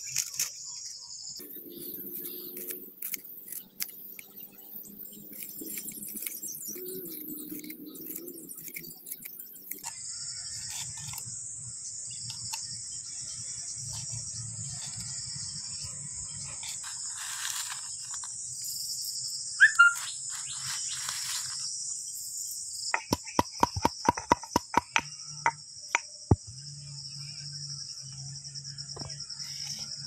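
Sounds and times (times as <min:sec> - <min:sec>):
crickets chirping: 0:00.0 - 0:30.0
sharp taps or knocks: 0:22.9 - 0:25.6.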